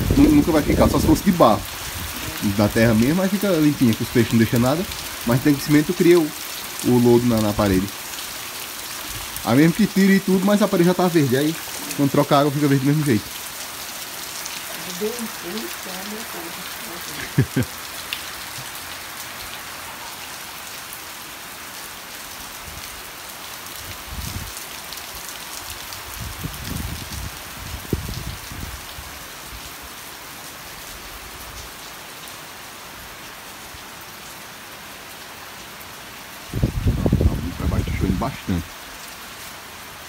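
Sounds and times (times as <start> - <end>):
heavy rain: 0.0 - 40.0
low rumbles on microphone: 36.6 - 38.2.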